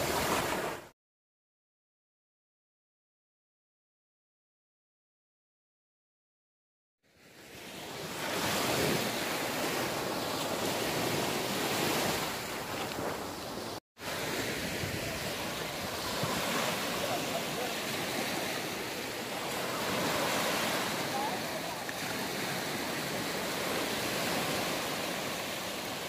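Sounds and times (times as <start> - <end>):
small waves breaking on beach: 0.0 - 0.9, 7.1 - 26.0.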